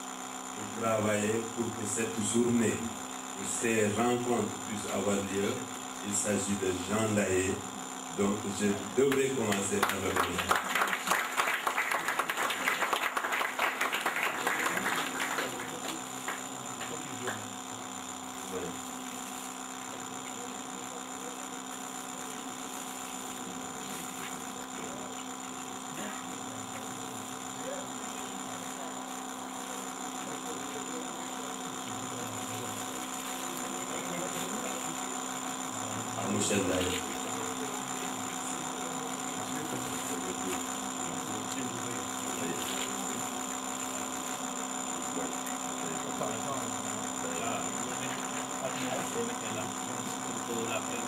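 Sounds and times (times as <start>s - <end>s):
electrical hum: 0.0s - 51.0s
audience applause: 9.8s - 16.5s.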